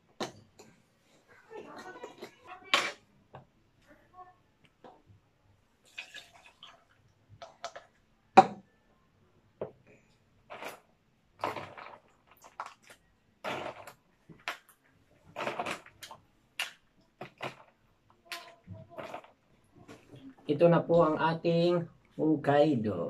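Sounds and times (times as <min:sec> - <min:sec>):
plastic scoop scraping and rattling: 0:10.5 - 0:10.8, 0:11.4 - 0:12.2, 0:15.3 - 0:16.0, 0:18.9 - 0:19.4.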